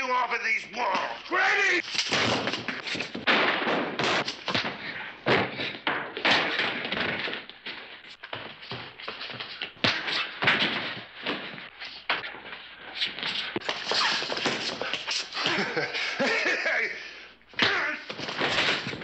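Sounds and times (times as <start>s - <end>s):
punch thuds: 1.8s - 7.5s
bodies slamming against walls: 1.8s - 12.4s.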